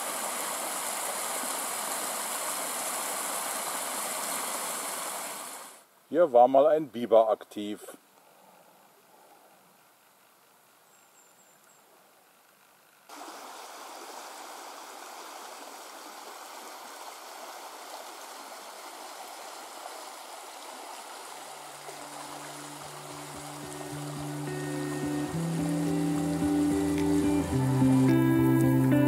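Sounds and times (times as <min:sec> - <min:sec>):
stream water rushing: 0:00.0 - 0:05.9, 0:13.1 - 0:29.0
music with low held tones: 0:22.2 - 0:29.0.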